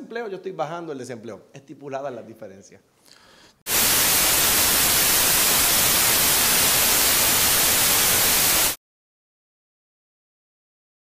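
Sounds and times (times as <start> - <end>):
tv static hiss: 3.7 - 8.8.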